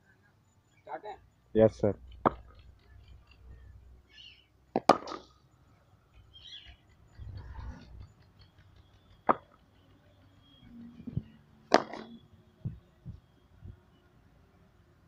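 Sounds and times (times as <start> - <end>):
cricket bat striking ball: 4.8 - 5.3, 11.7 - 12.2.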